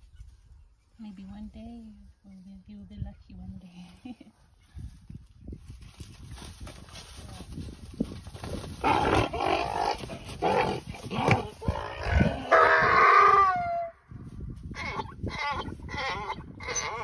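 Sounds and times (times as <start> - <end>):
donkey braying: 8.8 - 14.0, 14.7 - 17.0.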